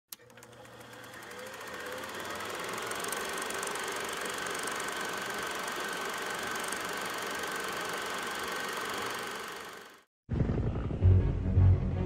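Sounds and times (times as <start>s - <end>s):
click: 0.1s - 0.7s
mechanical whirring with fast ticking: 0.1s - 10.1s.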